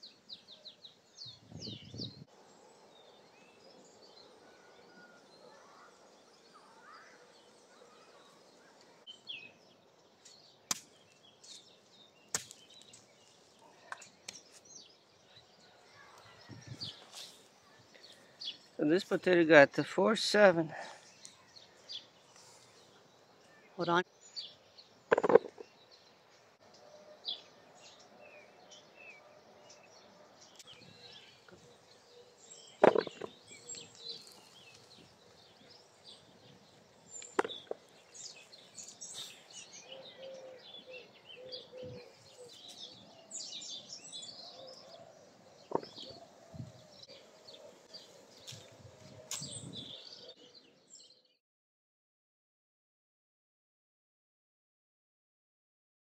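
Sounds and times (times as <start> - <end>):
small birds chirping: 0.0 - 51.4
rustling of potato plants: 10.1 - 20.6, 32.6 - 39.8, 48.0 - 50.1.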